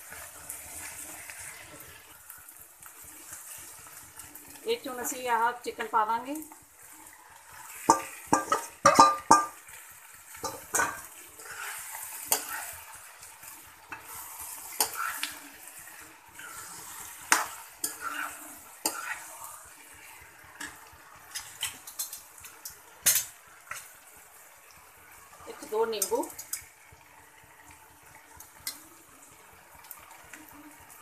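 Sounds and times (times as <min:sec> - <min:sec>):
chicken sizzling in a pan: 0:00.0 - 0:31.0
spatula scraping and clinking pan: 0:07.8 - 0:09.7, 0:10.3 - 0:13.0, 0:13.9 - 0:19.3.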